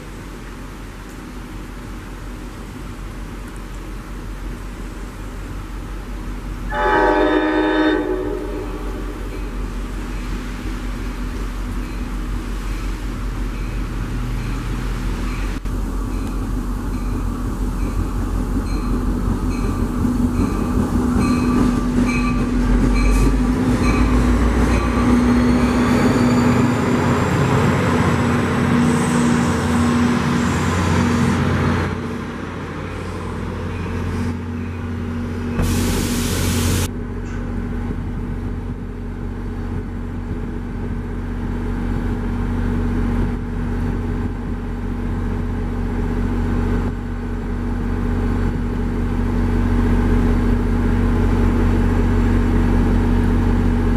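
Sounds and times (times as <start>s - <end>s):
locomotive engine humming: 0.0s - 53.9s
train rumbling past: 0.0s - 53.9s
high squeal: 24.0s - 27.4s
short sharp hiss: 35.6s - 36.9s.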